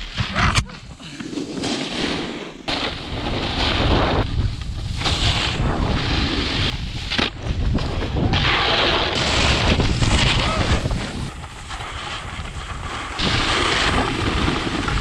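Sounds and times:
snowboard scraping snow: 0:00.0 - 0:15.0
wind buffeting microphone: 0:03.1 - 0:15.0.

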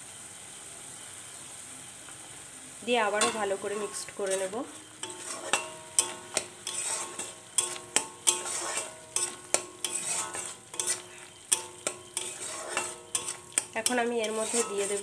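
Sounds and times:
paste sizzling in oil: 0:00.0 - 0:15.0
spatula scraping metal pan: 0:03.1 - 0:15.0.

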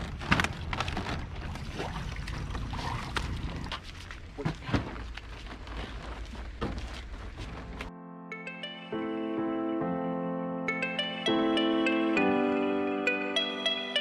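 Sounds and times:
low outdoor rumble: 0:00.0 - 0:07.9
water sloshing and dripping: 0:00.5 - 0:04.4.

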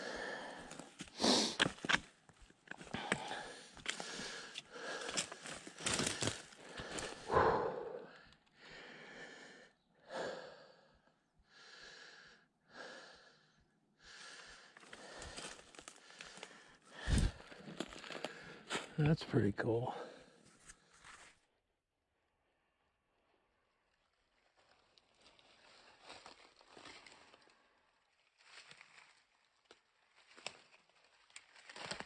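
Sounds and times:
person breathing hard: 0:00.0 - 0:01.8, 0:02.9 - 0:18.9.

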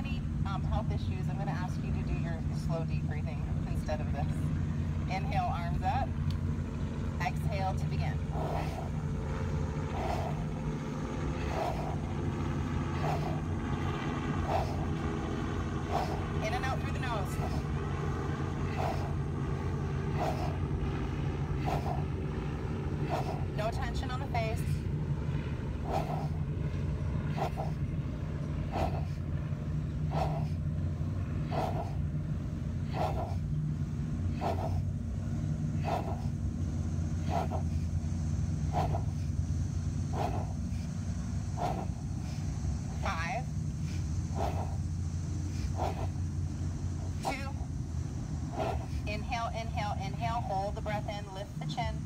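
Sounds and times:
low engine drone: 0:00.0 - 0:52.0
low rumble: 0:00.0 - 0:52.0
forceful nasal breathing: 0:08.2 - 0:09.1, 0:09.8 - 0:13.7, 0:14.4 - 0:15.0, 0:15.8 - 0:17.8, 0:18.5 - 0:20.7, 0:21.4 - 0:22.2, 0:22.9 - 0:23.7, 0:25.8 - 0:26.5, 0:27.2 - 0:27.9, 0:28.6 - 0:29.4, 0:30.0 - 0:32.2, 0:34.2 - 0:36.5, 0:37.1 - 0:42.9, 0:43.5 - 0:47.5.

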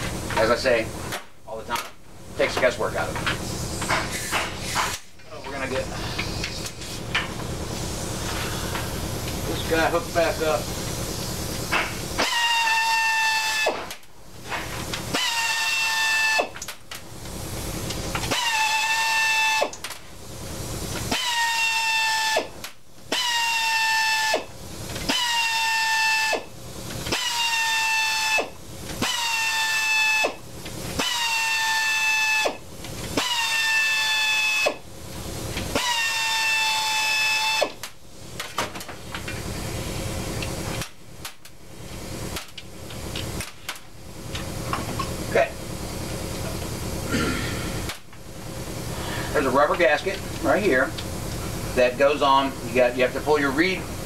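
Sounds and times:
pneumatic tool whining: 0:03.0 - 0:41.4
air hiss: 0:03.3 - 0:16.6, 0:47.0 - 0:49.7.

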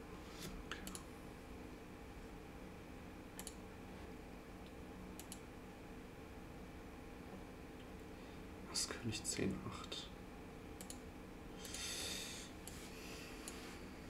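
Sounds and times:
faint steady hum: 0:00.0 - 0:14.0
computer mouse clicks: 0:00.7 - 0:01.1, 0:03.4 - 0:03.6, 0:05.2 - 0:05.4, 0:10.8 - 0:11.0.

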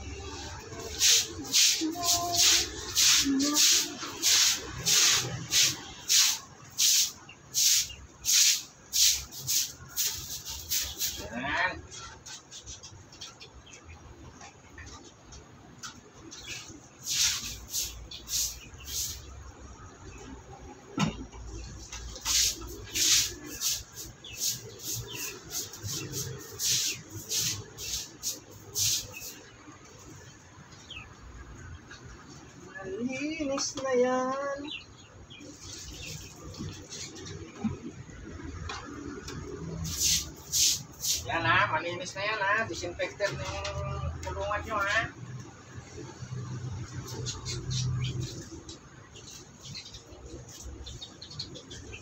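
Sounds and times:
scrubbing wet concrete floor: 0:00.8 - 0:11.3, 0:17.0 - 0:19.2, 0:22.2 - 0:29.4, 0:39.8 - 0:41.3.

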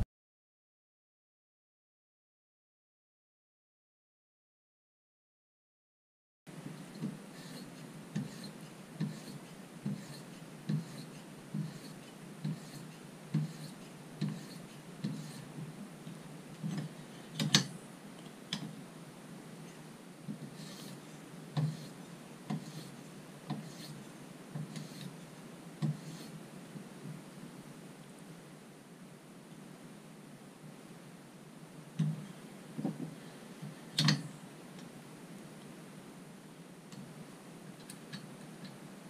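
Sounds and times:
sharpening stone strokes on knife: 0:07.4 - 0:15.5, 0:20.6 - 0:21.0, 0:23.6 - 0:24.0.

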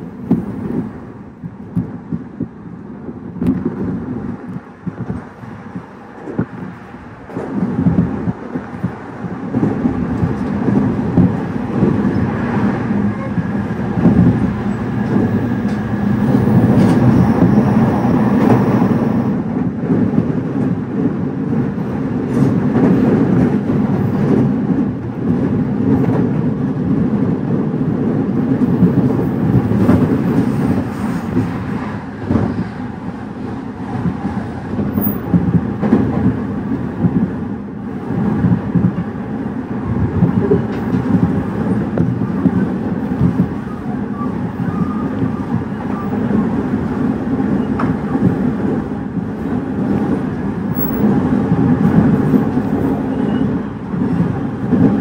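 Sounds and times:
rail clacks: 0:00.0 - 0:55.0
train wheels rumbling on rail: 0:00.0 - 0:55.0.

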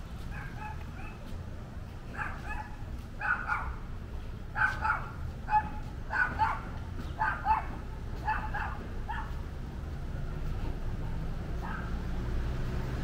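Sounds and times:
low street hum: 0:00.0 - 0:13.0
dog barking: 0:00.3 - 0:01.3, 0:02.1 - 0:03.8, 0:04.6 - 0:09.4, 0:11.6 - 0:12.0.

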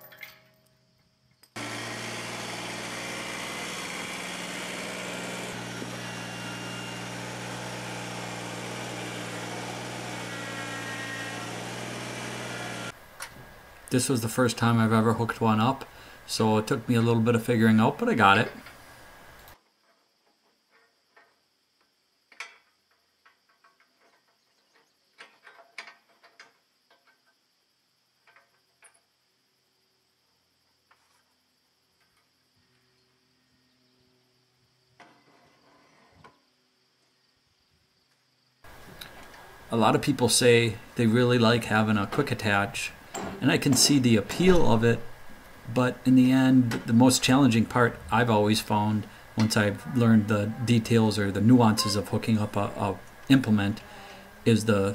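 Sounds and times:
tractor diesel engine running: 0:01.6 - 0:13.0.

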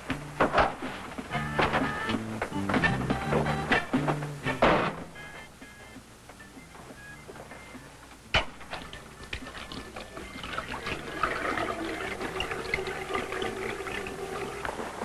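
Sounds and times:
steady hum: 0:00.0 - 0:15.0
tap running into a basin: 0:09.4 - 0:14.8.

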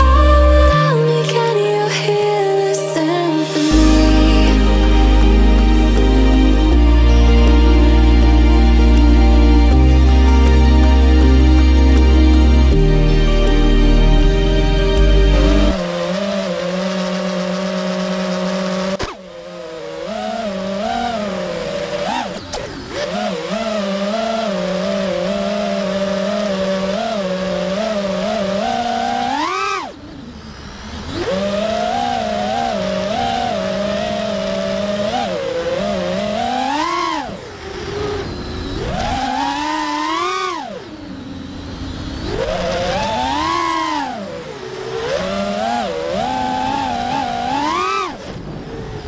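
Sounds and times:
drone motors whining: 0:00.0 - 0:49.0.

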